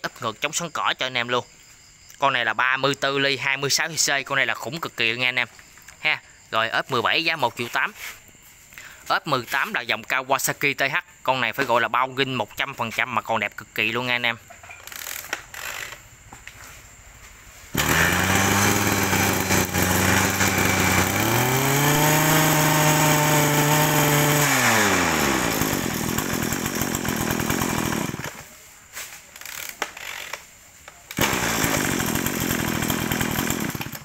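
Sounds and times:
brush cutter engine revving: 17.7s - 28.5s, 31.1s - 34.0s.

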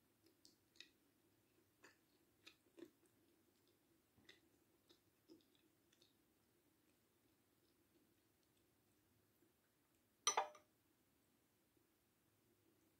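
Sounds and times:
soft chewing: 0.0s - 10.2s, 11.7s - 12.9s
metal spoon clicking on ceramic bowl: 10.3s - 10.6s.

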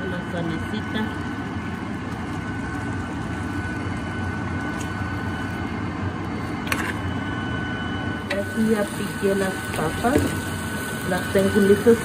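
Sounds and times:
meat sizzling in hot fat: 8.4s - 12.0s.

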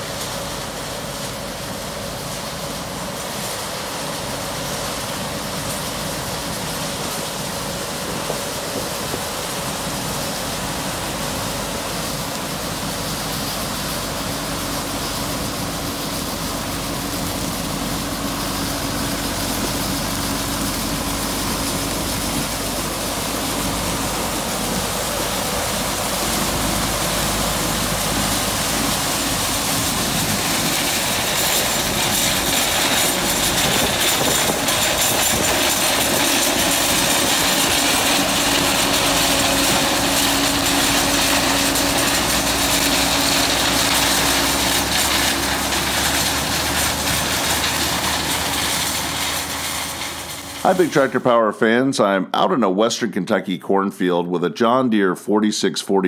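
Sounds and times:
grain pouring from auger: 0.0s - 51.3s
engines running: 4.9s - 51.4s
threshing din: 13.9s - 51.2s.

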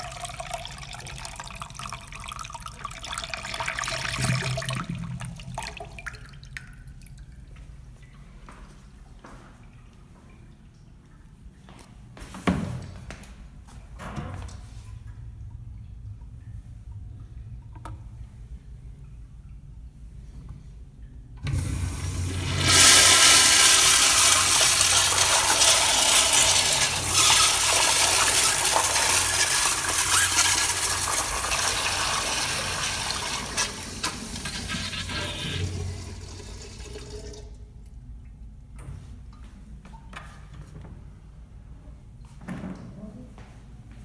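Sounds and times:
water rushing through toilet bowl: 0.0s - 6.8s, 21.4s - 37.8s
water trickling: 0.0s - 12.3s, 13.7s - 39.5s
flush valve hissing: 21.4s - 37.4s.

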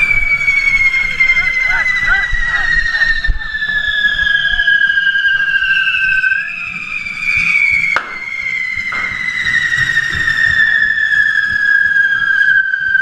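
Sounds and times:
fireworks whistling: 0.0s - 13.0s
sharp crack: 7.9s - 9.8s.

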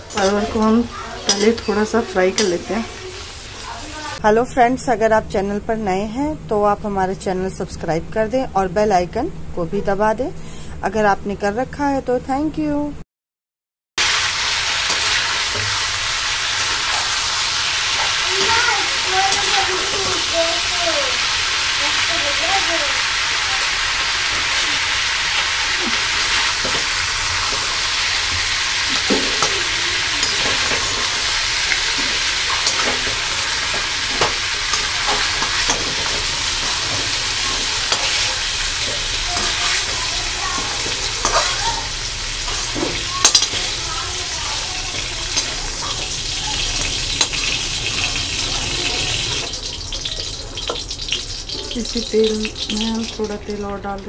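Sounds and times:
metal spoon scraping a pan: 0.0s - 3.8s, 16.5s - 20.3s, 23.6s - 41.7s, 42.4s - 43.8s
vegetables sizzling in oil: 0.0s - 4.2s, 14.0s - 54.0s.

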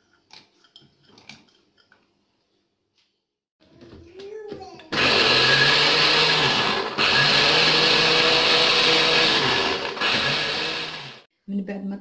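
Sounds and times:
blender running: 4.9s - 11.3s.

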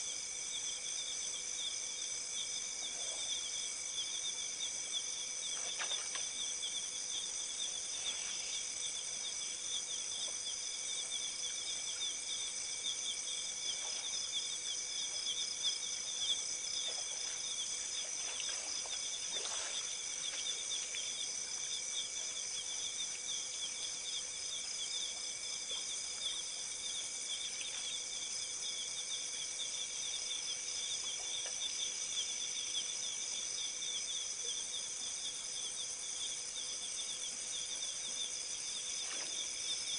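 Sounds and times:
faint steady hum: 0.0s - 39.9s
night insects trilling: 0.0s - 39.9s
faint soft sounds: 4.7s - 28.5s.

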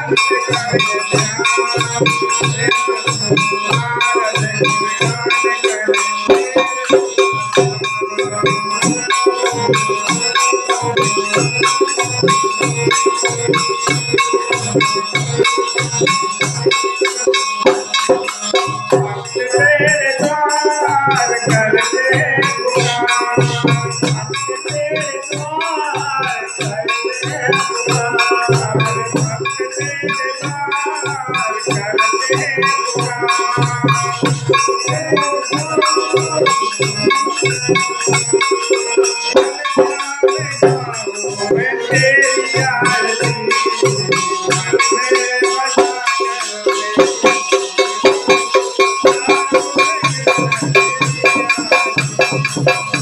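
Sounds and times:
dholak drum beating: 0.0s - 53.0s
harmonium chords: 0.0s - 53.0s
jingle-clappers rattling: 0.0s - 53.0s
man singing: 0.0s - 53.0s.

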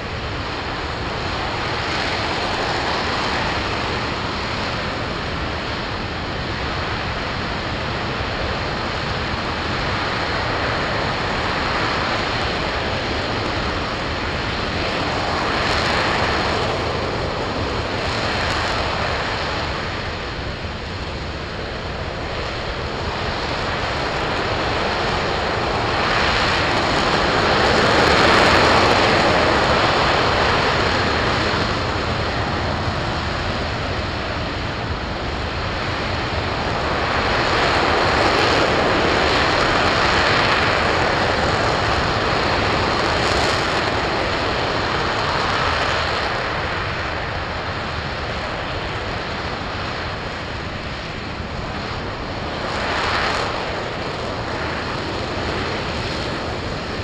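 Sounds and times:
rocket engine roaring: 0.0s - 57.0s.

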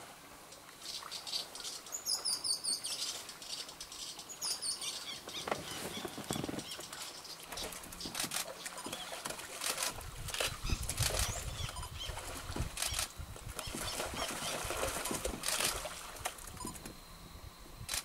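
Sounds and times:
otters splashing in water: 5.6s - 16.7s.

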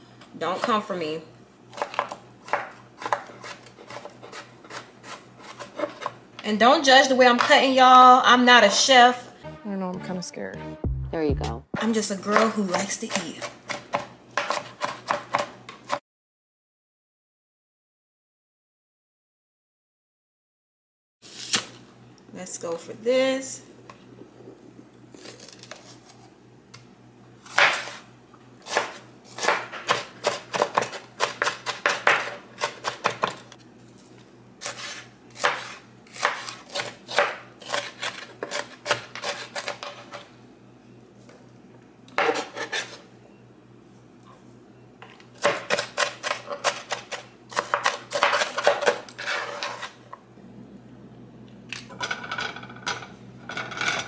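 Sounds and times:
knife chopping on wooden board: 1.7s - 6.2s, 12.3s - 16.0s, 28.7s - 33.4s, 34.6s - 40.0s, 45.4s - 49.0s.

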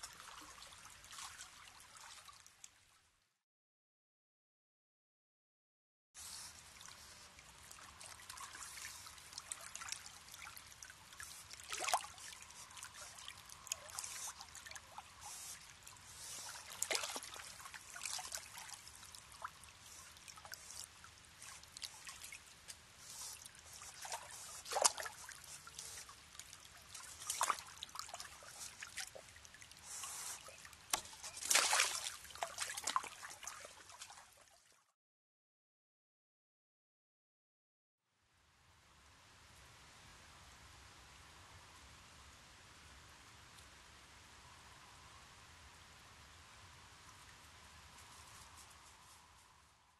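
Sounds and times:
water trickling: 6.5s - 34.7s
otter splashing in water: 7.7s - 22.4s, 23.3s - 34.4s.

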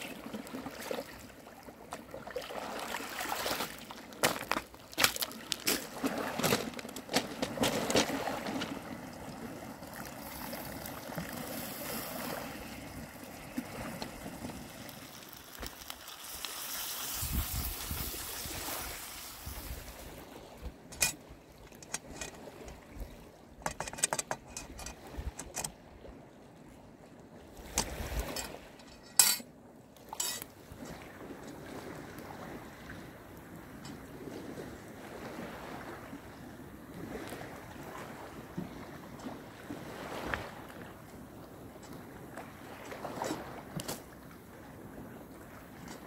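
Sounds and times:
seawater lapping among stones: 0.0s - 46.0s.

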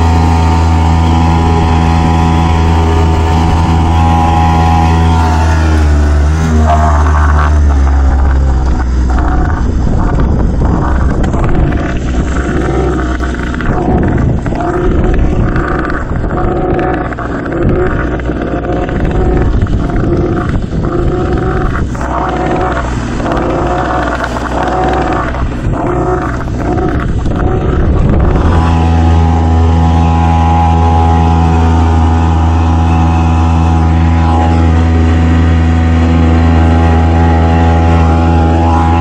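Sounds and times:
outboard motor running: 0.0s - 39.0s.

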